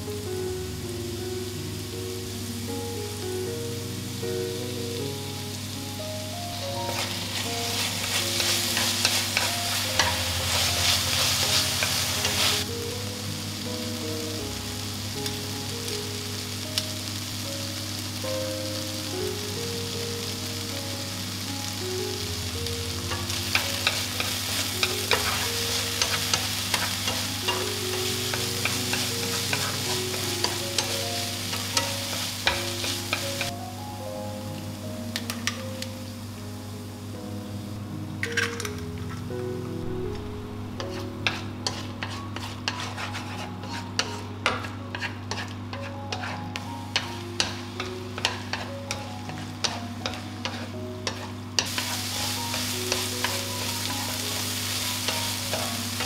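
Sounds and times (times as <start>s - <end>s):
vegetables sizzling in oil: 0.0s - 39.0s, 39.8s - 56.0s
utensil scraping pan: 6.9s - 12.6s, 40.8s - 47.6s, 48.2s - 52.1s.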